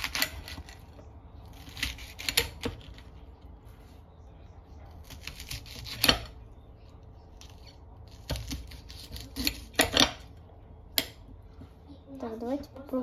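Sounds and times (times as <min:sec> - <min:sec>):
knife slicing crisp lettuce: 0:01.5 - 0:03.1, 0:05.0 - 0:06.4, 0:07.4 - 0:10.2.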